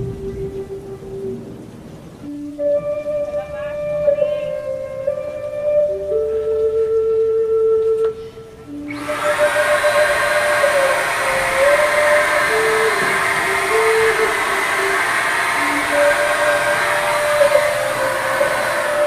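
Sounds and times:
paint spray gun hissing: 0:08.9 - 0:19.0.

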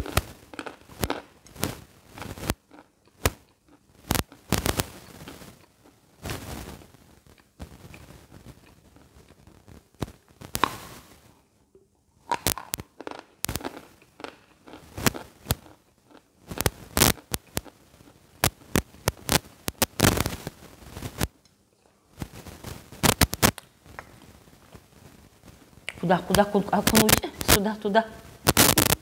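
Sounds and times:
chalk crunching while chewed: 0:00.0 - 0:01.3, 0:02.1 - 0:06.0, 0:12.3 - 0:18.6.

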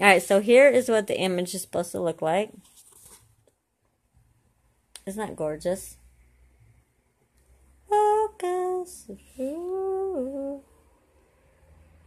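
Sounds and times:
woman humming: 0:09.0 - 0:10.6.

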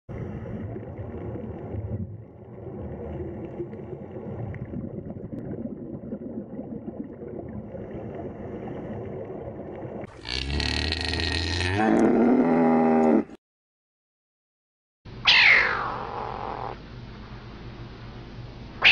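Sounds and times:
underwater water rumble: 0:00.1 - 0:10.4
crackling and gurgling: 0:00.1 - 0:12.2.

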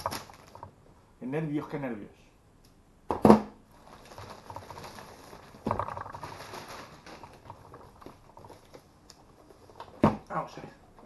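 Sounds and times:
plastic bag rustling and crinkling: 0:00.0 - 0:00.9, 0:03.7 - 0:10.4.

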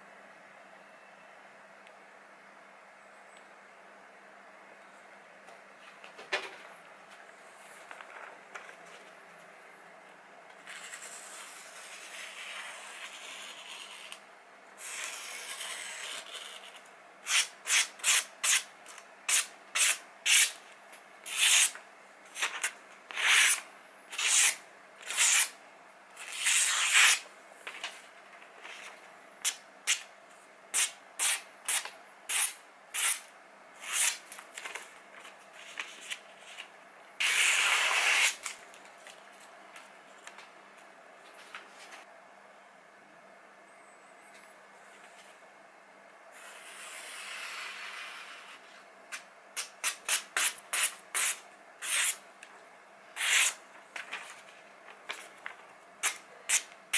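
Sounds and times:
paper rustling: 0:07.6 - 0:09.2, 0:26.3 - 0:29.0, 0:53.2 - 0:56.2
knife slicing paper: 0:21.3 - 0:21.7, 0:22.4 - 0:25.6, 0:26.2 - 0:27.2, 0:30.8 - 0:33.2, 0:33.8 - 0:34.2, 0:35.6 - 0:38.6, 0:49.6 - 0:52.2, 0:53.2 - 0:54.4.

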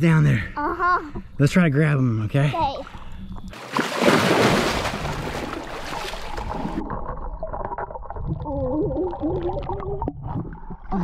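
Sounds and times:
water splashing: 0:02.8 - 0:11.0
underwater gurgles: 0:04.9 - 0:11.0.

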